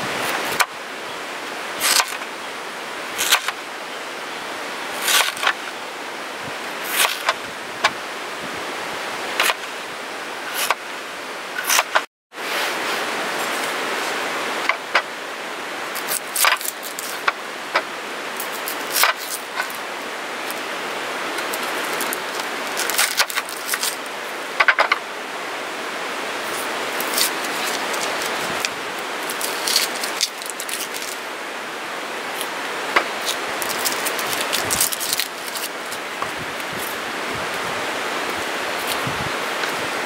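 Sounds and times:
steady rushing background noise: 0:00.0 - 0:40.0
onion skin crackling: 0:01.8 - 0:02.2, 0:16.0 - 0:17.3, 0:18.4 - 0:19.8, 0:21.4 - 0:24.1, 0:26.4 - 0:31.2, 0:32.4 - 0:36.0.

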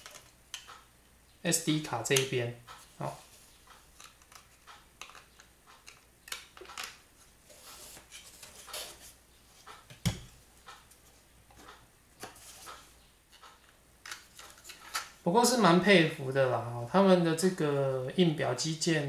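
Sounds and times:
plastic parts rustling and clicking: 0:00.0 - 0:00.8, 0:03.9 - 0:07.0, 0:11.6 - 0:15.2.

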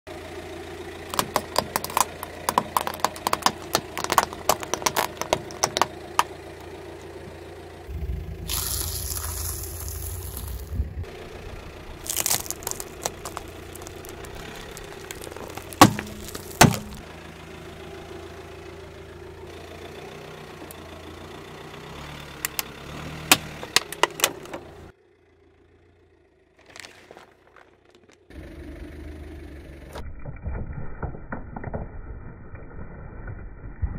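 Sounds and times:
car engine running low: 0:00.1 - 0:33.9
plastic toys cracking: 0:01.1 - 0:06.3, 0:12.0 - 0:17.0
vegetables crunching under tyre: 0:01.1 - 0:06.3, 0:08.4 - 0:10.8, 0:11.9 - 0:17.0, 0:26.6 - 0:28.3.

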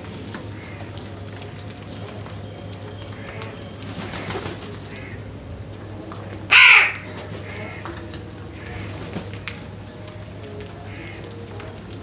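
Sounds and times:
faint crow calls: 0:03.2 - 0:05.3, 0:06.2 - 0:09.3, 0:10.8 - 0:11.6
crow cawing: 0:04.1 - 0:05.2, 0:06.5 - 0:07.8, 0:10.9 - 0:11.4.

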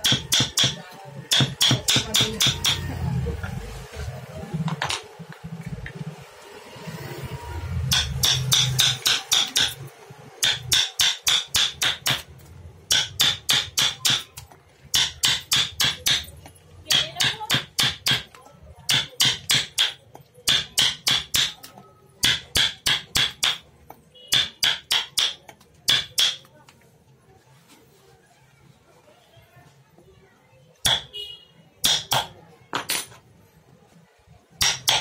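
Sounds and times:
hammer tapping: 0:00.0 - 0:02.9, 0:07.9 - 0:26.5, 0:30.8 - 0:31.1, 0:31.8 - 0:33.0, 0:34.6 - 0:35.0.

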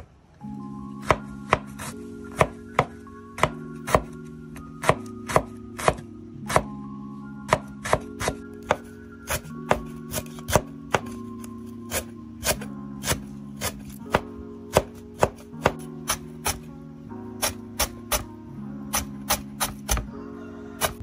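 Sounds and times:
background music: 0:00.0 - 0:21.0
cleaver chopping on cutting board: 0:07.5 - 0:11.2, 0:11.9 - 0:16.6, 0:18.9 - 0:20.1.

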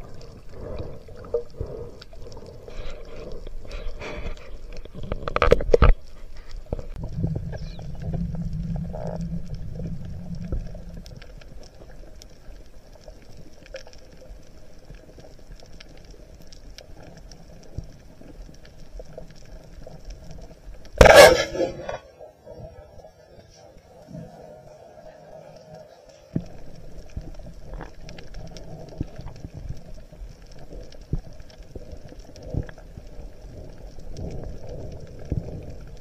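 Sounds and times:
low underwater rumble: 0:00.0 - 0:36.0
underwater knocks and rubbing: 0:02.7 - 0:10.9.

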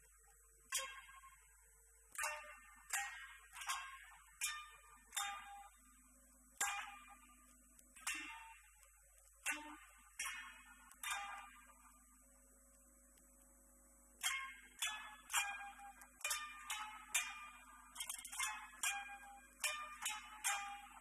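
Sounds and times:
koto plucked notes: 0:00.7 - 0:01.5, 0:02.1 - 0:05.8, 0:06.6 - 0:07.4, 0:08.0 - 0:12.0, 0:14.2 - 0:21.0.

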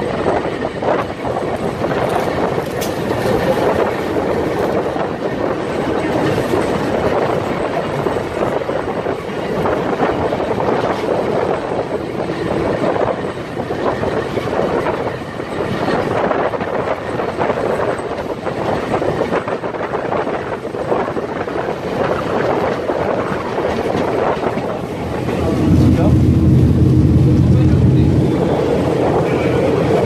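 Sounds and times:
train wheels rattling on rails: 0:00.0 - 0:30.0
wind noise on microphone: 0:00.0 - 0:30.0.

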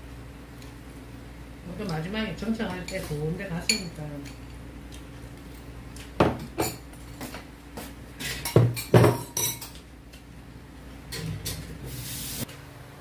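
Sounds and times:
dishes clattering: 0:08.2 - 0:09.8.

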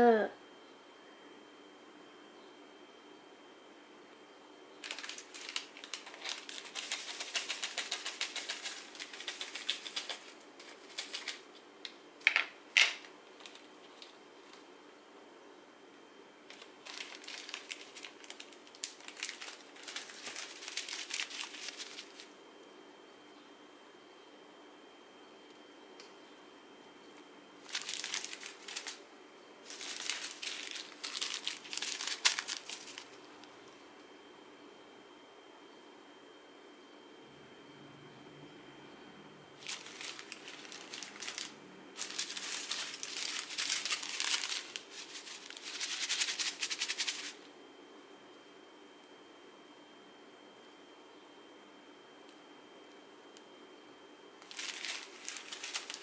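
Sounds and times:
plastic bags crinkling: 0:04.8 - 0:11.6, 0:12.2 - 0:14.6, 0:16.5 - 0:22.3, 0:27.6 - 0:29.0, 0:29.6 - 0:33.3, 0:39.6 - 0:47.4, 0:54.4 - 0:56.0.

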